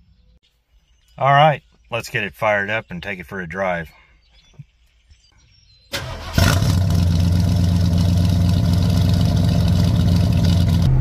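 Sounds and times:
car engine starting and idling: 5.9s - 11.0s.

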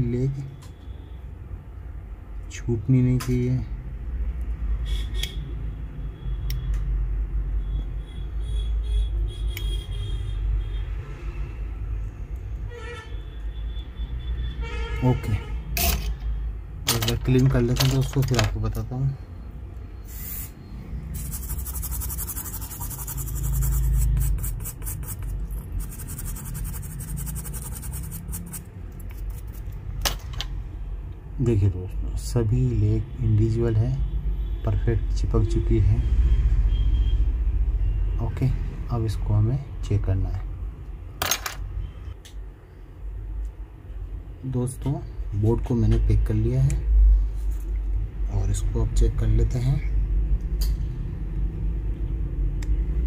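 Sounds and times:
scratchy scrubbing on circuit board: 21.2s - 29.8s.

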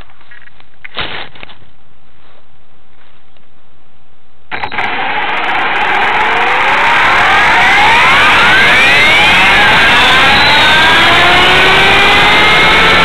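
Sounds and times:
rc helicopter motor whine: 4.6s - 13.0s.

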